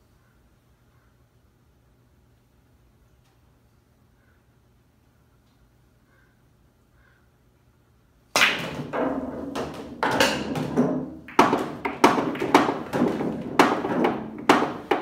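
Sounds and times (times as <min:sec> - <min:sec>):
billiard balls clacking: 0:08.4 - 0:15.0
pool cue striking ball: 0:08.4 - 0:15.0.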